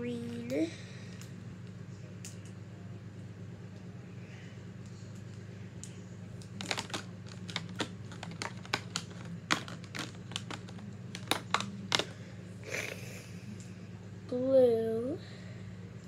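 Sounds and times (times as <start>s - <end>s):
plastic markers clicking together: 6.6s - 12.1s.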